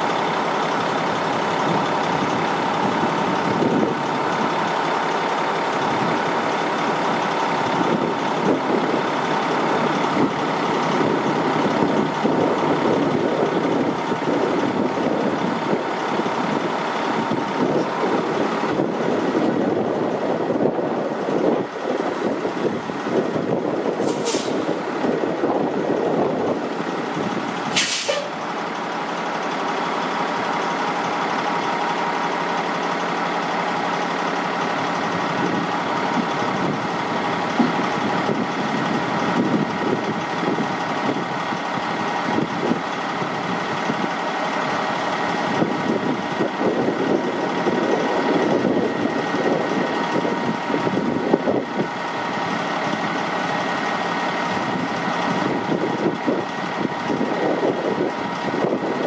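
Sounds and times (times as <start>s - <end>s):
diesel truck engine idling: 0.0s - 59.0s
brief hiss: 24.0s - 24.7s, 27.7s - 28.3s.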